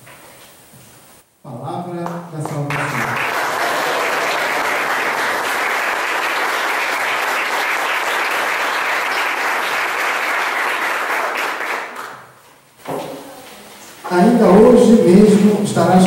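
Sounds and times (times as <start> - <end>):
congregation applauding: 2.0 - 12.4.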